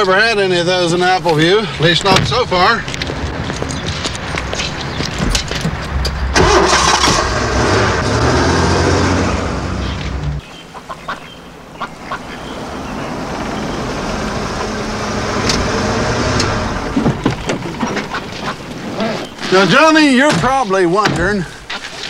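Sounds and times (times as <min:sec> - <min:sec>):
car engine running: 0:02.7 - 0:10.4, 0:12.3 - 0:17.4.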